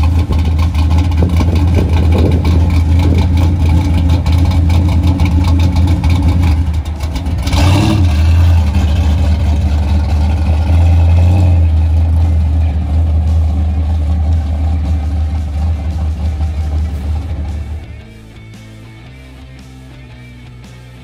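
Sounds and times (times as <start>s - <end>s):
truck engine revving: 0.0s - 21.0s.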